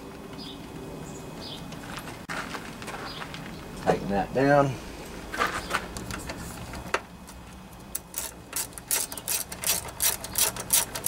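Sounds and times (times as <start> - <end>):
ratchet wrench clicking: 7.9 - 11.0.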